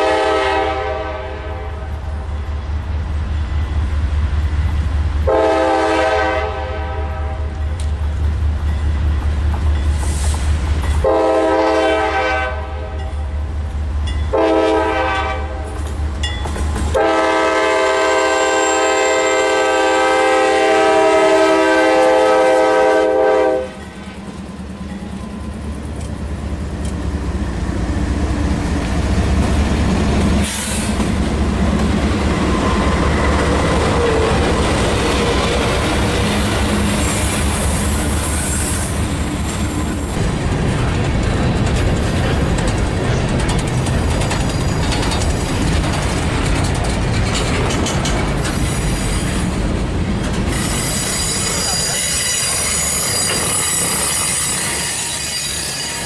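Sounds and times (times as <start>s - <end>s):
train air horn blasts: 0.0s - 2.0s, 5.2s - 7.6s, 11.0s - 13.1s, 14.3s - 15.8s, 16.9s - 23.8s
train wheels clattering on rails: 1.4s - 23.0s, 23.6s - 56.0s.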